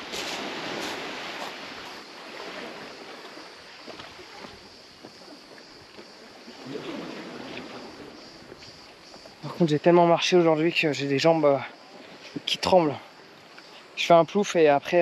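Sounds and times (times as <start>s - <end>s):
small waves on pebble shore: 0.0s - 9.4s.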